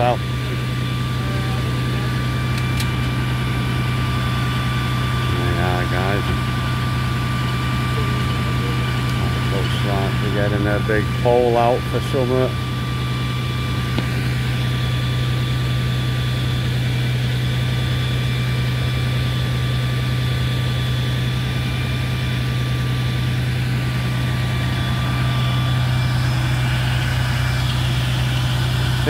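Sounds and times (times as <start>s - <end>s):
diesel engine idling: 0.0s - 29.0s
thin steady whine: 0.0s - 29.0s.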